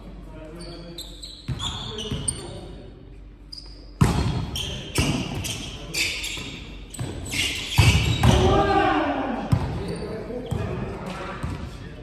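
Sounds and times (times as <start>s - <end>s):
shoes squeaking on court: 0.4s - 2.8s, 3.4s - 8.5s, 9.5s - 11.9s
volleyball hits and thuds: 4.0s - 5.5s, 7.8s - 8.6s.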